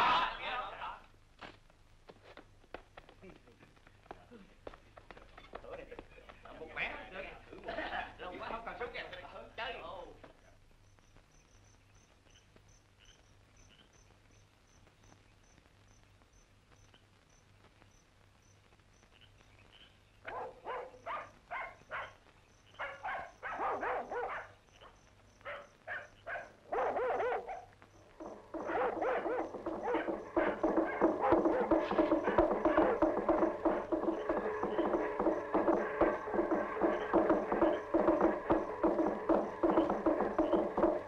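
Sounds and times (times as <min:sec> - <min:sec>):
faint low hum: 0:00.0 - 0:41.0
crickets chirping: 0:06.8 - 0:41.0
dog barking: 0:20.2 - 0:41.0.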